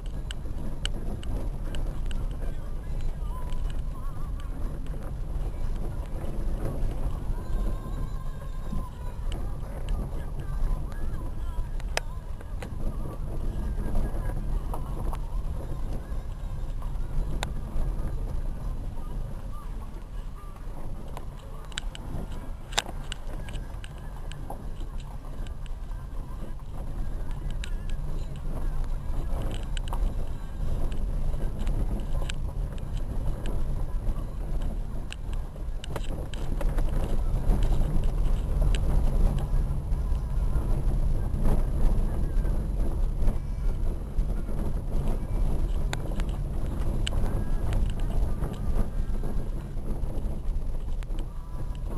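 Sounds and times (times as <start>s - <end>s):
car rumbling on dirt track: 0.0s - 51.9s.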